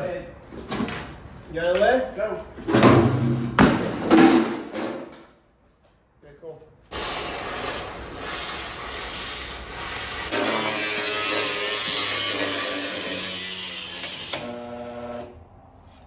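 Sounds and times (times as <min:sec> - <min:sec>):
angle grinder cutting steel: 0:10.1 - 0:14.6.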